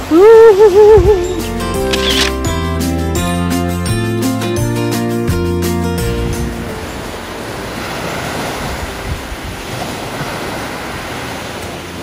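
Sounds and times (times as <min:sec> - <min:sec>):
wind on microphone: 0:00.0 - 0:01.4, 0:06.1 - 0:11.4
waves breaking on sandy beach: 0:06.8 - 0:12.0.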